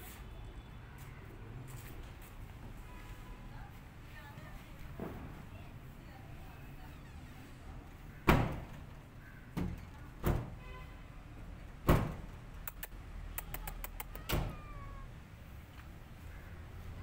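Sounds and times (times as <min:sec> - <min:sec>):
loud sharp knocks: 0:08.3 - 0:08.8, 0:11.9 - 0:12.4.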